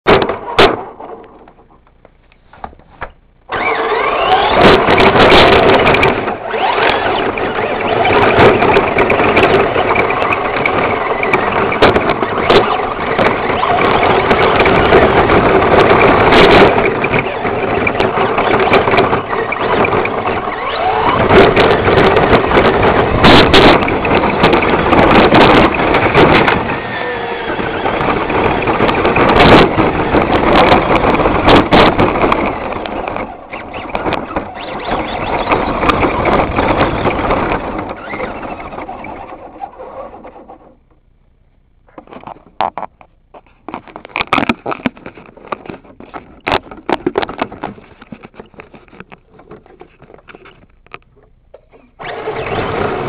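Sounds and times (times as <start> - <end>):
knocks and rattles from bumps: 0.1 - 26.8, 27.7 - 40.8, 41.9 - 53.0
rc truck motor whining: 3.5 - 41.0, 50.3 - 53.0.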